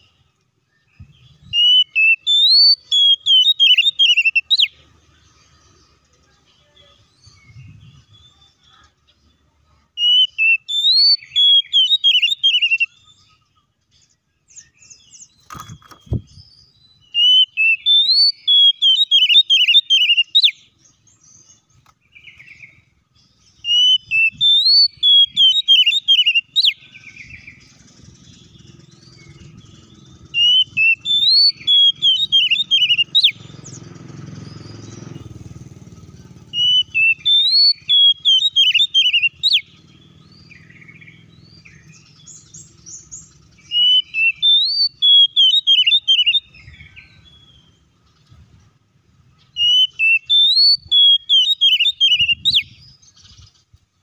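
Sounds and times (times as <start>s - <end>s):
bird song whistles and trills: 0.0s - 53.8s.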